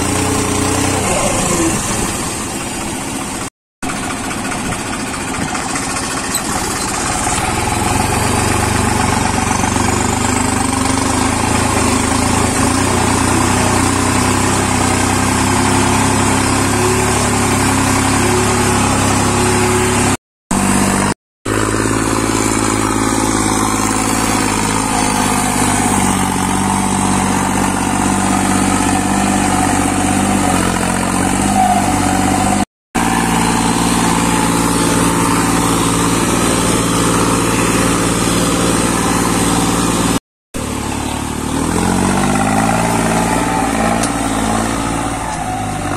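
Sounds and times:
diesel tractor engines running: 0.0 - 45.9.

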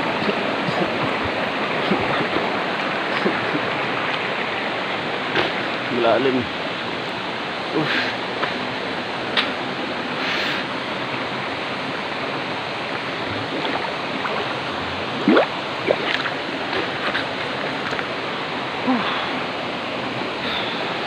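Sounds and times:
river flowing over rocks: 0.0 - 21.0
small water splashes: 13.2 - 18.1.

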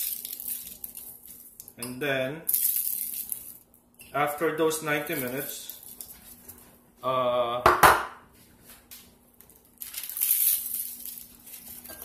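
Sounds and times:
aluminium foil crinkling: 0.0 - 1.8, 2.5 - 3.7, 5.0 - 6.6, 9.4 - 12.0
knocks on baking tray: 7.7 - 8.2.

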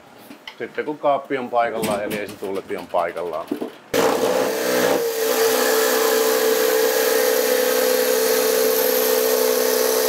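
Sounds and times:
electric motor whining: 4.0 - 10.0.

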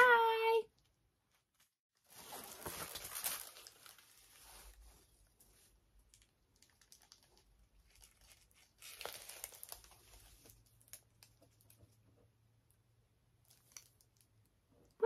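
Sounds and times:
plastic sleeve crinkling: 1.5 - 12.1, 13.4 - 14.5.

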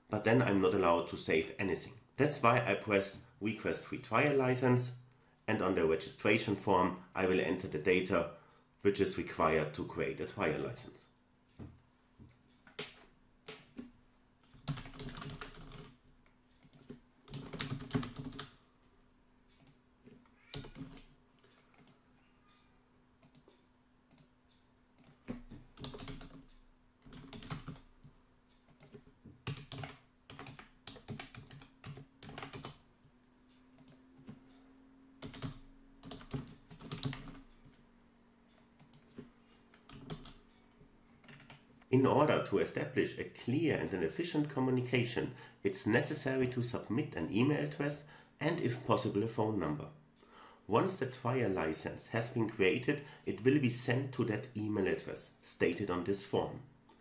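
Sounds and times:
faint steady hum: 0.0 - 57.0
typing on computer keyboard: 12.7 - 16.0, 16.6 - 18.6, 20.5 - 22.0, 25.0 - 27.9, 28.7 - 32.8, 35.2 - 37.5, 38.8 - 40.4, 41.2 - 41.6.

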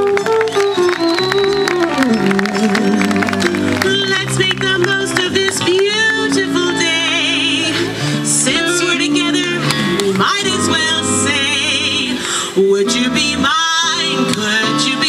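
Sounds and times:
acoustic guitar: 0.0 - 15.0
wavering high melody: 0.9 - 8.0
person singing: 1.9 - 15.0.

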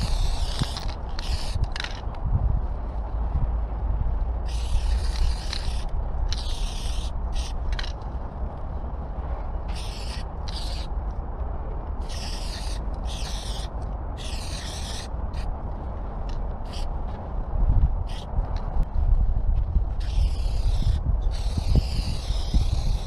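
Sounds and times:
spray paint can hissing: 0.0 - 2.1, 4.4 - 8.0, 9.7 - 10.9, 12.0 - 15.5, 16.6 - 16.9, 18.0 - 18.3, 20.0 - 23.0
wind rumble on microphone: 0.0 - 23.0.

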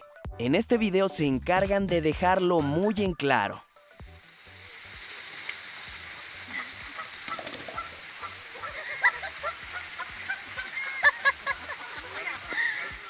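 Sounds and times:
goose honking: 6.2 - 13.0.

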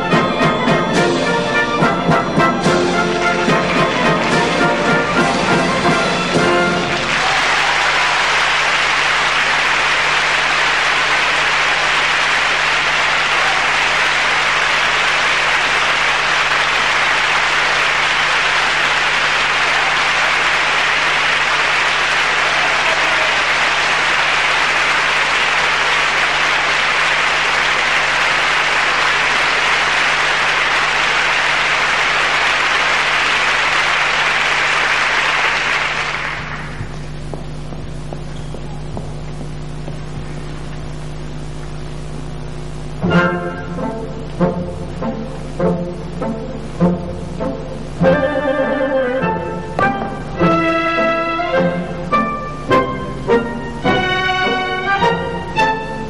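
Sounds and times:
audience applauding: 1.8 - 39.0
low hum: 8.6 - 56.0.

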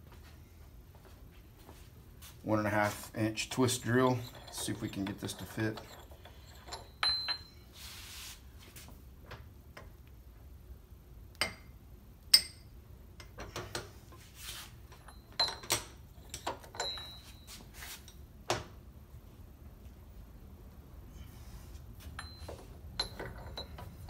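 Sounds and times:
metal tools clinking on steel: 2.7 - 7.8, 14.9 - 18.2, 22.1 - 24.0.

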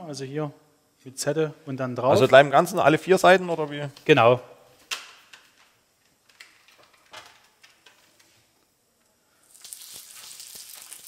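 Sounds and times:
meat sizzling in a grill pan: 9.5 - 11.0.

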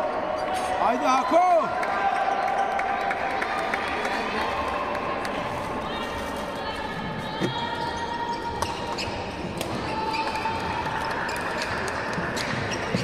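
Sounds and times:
shoes squeaking on floor: 7.1 - 13.0.

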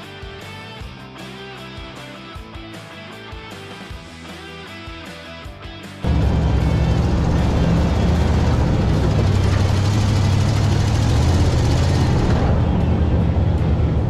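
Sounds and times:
truck engine under load: 6.0 - 14.0
wind and tyre noise: 6.1 - 14.0.

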